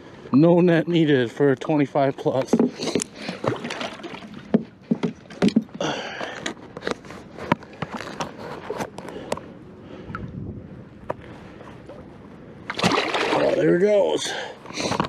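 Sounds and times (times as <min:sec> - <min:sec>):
water splashing against boat: 0:02.1 - 0:06.0, 0:11.2 - 0:15.0.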